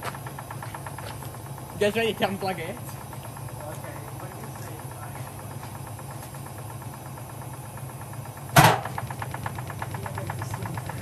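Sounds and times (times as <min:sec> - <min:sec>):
washing machine motor hum: 0:00.0 - 0:11.0
loud bang inside drum: 0:08.6 - 0:08.9.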